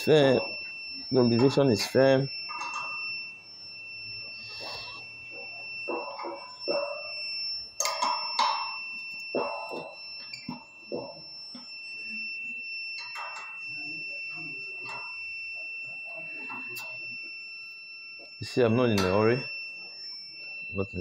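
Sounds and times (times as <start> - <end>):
high-pitched electronic beep tone: 0.0 - 21.0
spanner clinking on metal: 7.8 - 8.8.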